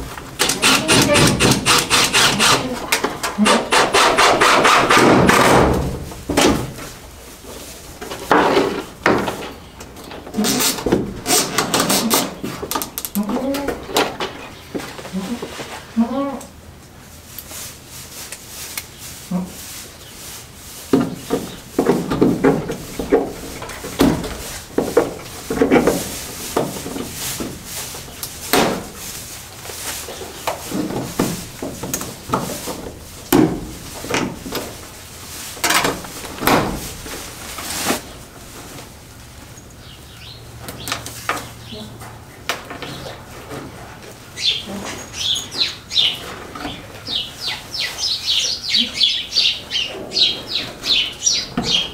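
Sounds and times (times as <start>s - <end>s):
irregular knocks and clatter: 8.0s - 13.1s, 20.9s - 27.9s, 30.4s - 34.8s
bird chirping: 44.4s - 51.9s.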